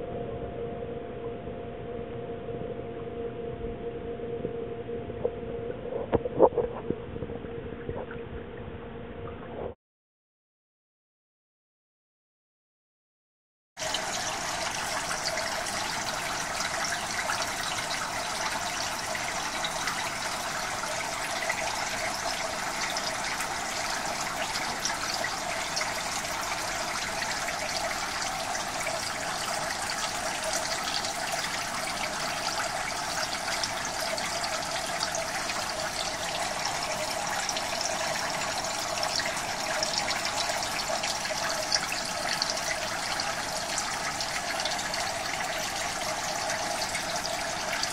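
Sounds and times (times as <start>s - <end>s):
water rushing and trickling: 13.8s - 47.9s.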